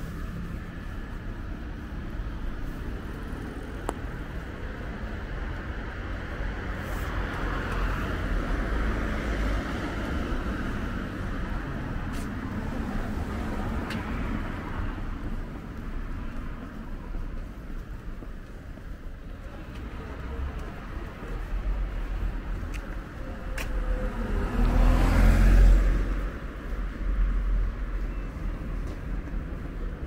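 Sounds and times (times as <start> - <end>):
low rumble of cars: 0.0 - 30.0
vehicle passing: 23.5 - 26.8.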